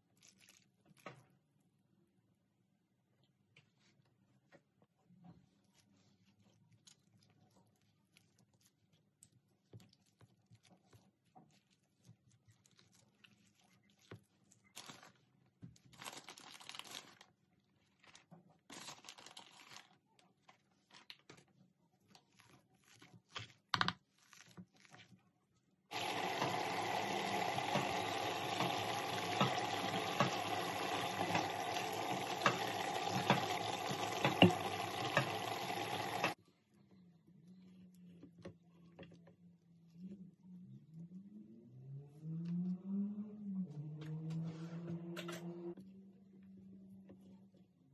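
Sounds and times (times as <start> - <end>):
potato masher squelching: 25.9 - 36.4.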